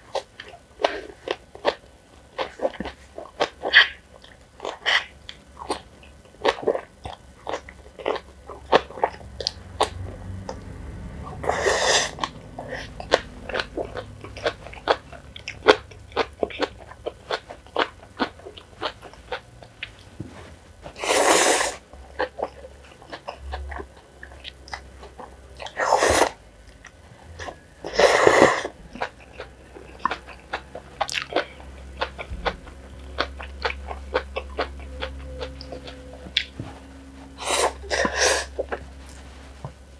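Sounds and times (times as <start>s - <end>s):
wet chewing and mouth clicks: 0.1s - 10.7s, 11.3s - 20.1s, 21.6s - 36.6s
noodle slurps: 11.4s - 12.9s.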